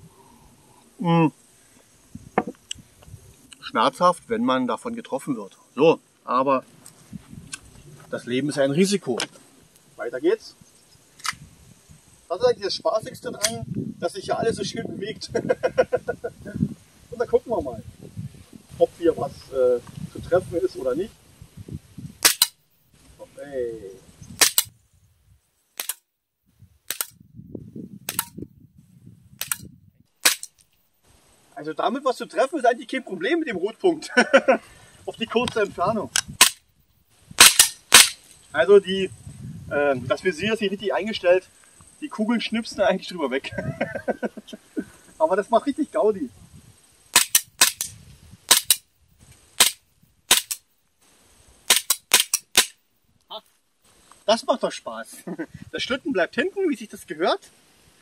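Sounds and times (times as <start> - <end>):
airsoft pistol shots: 22.2 - 22.6, 24.4 - 24.7, 25.8 - 26.0, 26.9 - 27.2, 28.1 - 28.4, 29.4 - 30.5, 36.4 - 36.6, 37.4 - 38.2, 47.1 - 47.9, 48.5 - 48.8, 49.6 - 50.6, 51.7 - 52.8.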